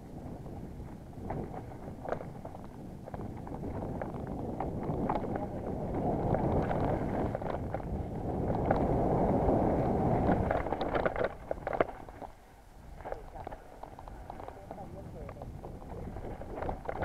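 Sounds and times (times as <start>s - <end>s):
wind rushing over microphone: 0.0s - 17.0s
bike clicks and rattles: 1.2s - 5.6s, 6.2s - 9.0s, 10.2s - 12.4s.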